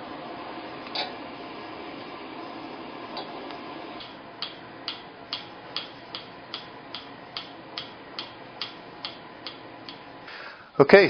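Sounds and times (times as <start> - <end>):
gas hiss: 0.0 - 6.2
stove spark igniter clicking: 0.8 - 1.2, 3.1 - 10.1.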